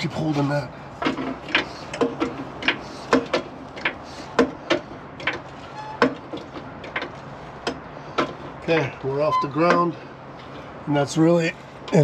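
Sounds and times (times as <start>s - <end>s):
jack squeak: 5.6s - 6.3s, 9.2s - 9.8s.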